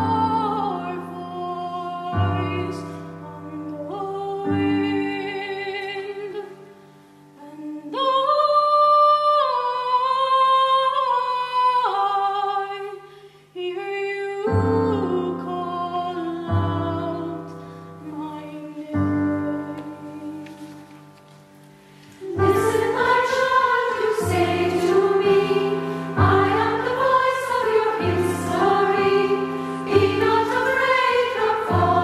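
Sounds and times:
piano accompaniment: 0:00.0 - 0:06.4, 0:14.5 - 0:32.0
women's choir singing: 0:22.2 - 0:32.0.

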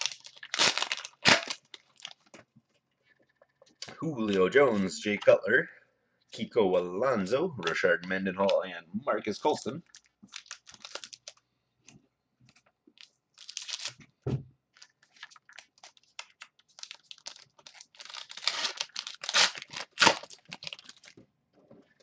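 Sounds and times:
plastic wrapper tearing and crinkling: 0:00.0 - 0:02.4, 0:09.4 - 0:11.4, 0:13.0 - 0:14.0, 0:14.7 - 0:21.2.

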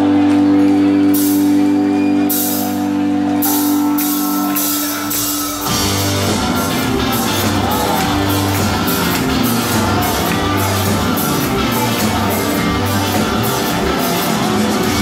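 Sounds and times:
live rock band playing: 0:00.0 - 0:15.0
sustained guitar chords: 0:00.0 - 0:15.0
pulsing bass and drum beat: 0:03.5 - 0:15.0.

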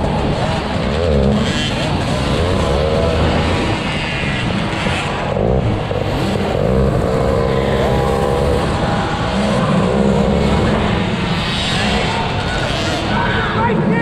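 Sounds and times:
motocross bike engines revving: 0:00.0 - 0:14.0.

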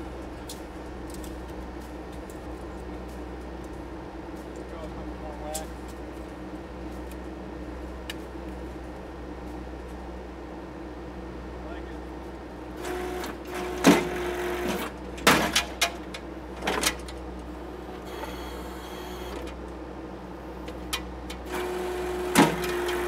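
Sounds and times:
skid steer engine running: 0:00.0 - 0:23.0
hydraulic whine: 0:12.8 - 0:15.0, 0:17.6 - 0:19.6, 0:21.4 - 0:23.0.

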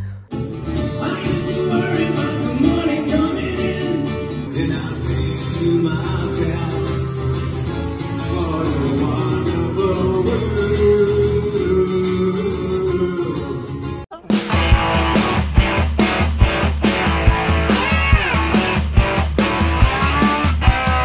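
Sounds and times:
person singing: 0:00.0 - 0:07.0
guitar music: 0:00.0 - 0:21.0.

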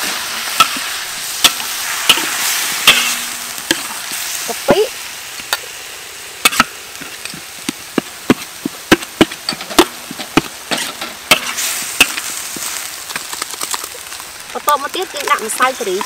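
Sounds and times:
metal spoon scraping a wok: 0:00.4 - 0:04.2, 0:10.7 - 0:12.3.

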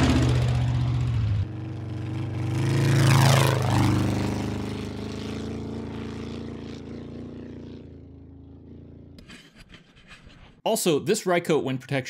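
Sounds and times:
dune buggy engine receding: 0:00.0 - 0:09.4.

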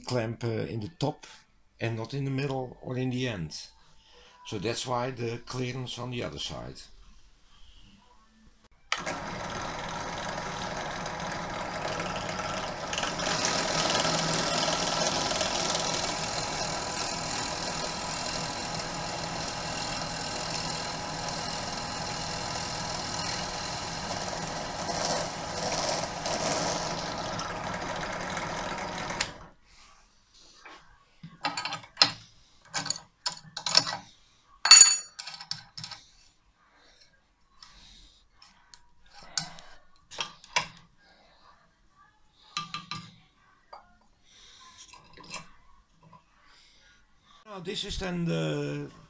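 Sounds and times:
drill press motor running: 0:08.9 - 0:29.5
drill bit boring into wood: 0:09.0 - 0:29.5.

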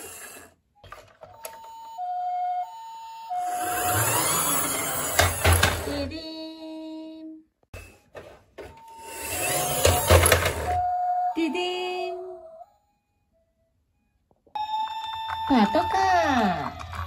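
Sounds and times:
toy electronic two-tone siren: 0:00.1 - 0:05.2, 0:14.6 - 0:16.6
plastic wheels rumbling on wood: 0:04.0 - 0:06.1.

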